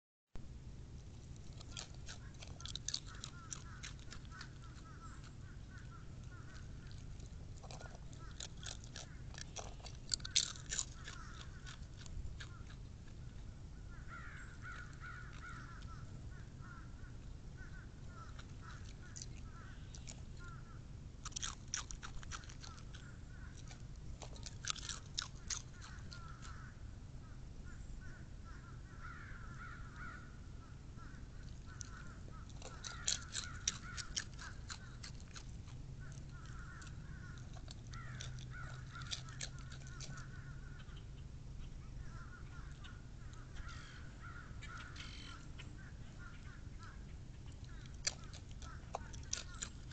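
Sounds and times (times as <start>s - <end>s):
fox crunching chips: 0.5s - 26.8s, 30.8s - 41.2s, 41.9s - 49.9s
crows cawing: 2.6s - 7.0s, 10.2s - 11.8s, 13.8s - 20.8s, 25.8s - 26.8s, 28.0s - 30.4s, 31.0s - 35.0s, 36.0s - 41.0s, 42.0s - 47.1s.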